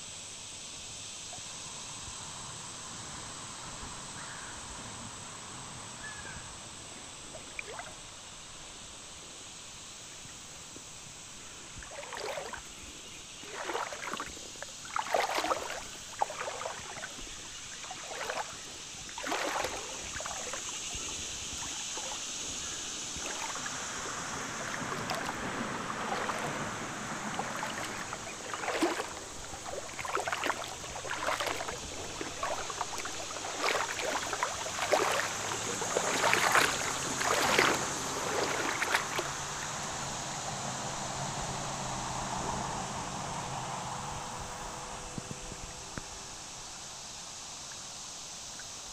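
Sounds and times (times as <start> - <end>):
steady high hiss: 0.0 - 48.9
creek water splashing over gravel: 7.3 - 8.1, 10.8 - 40.2.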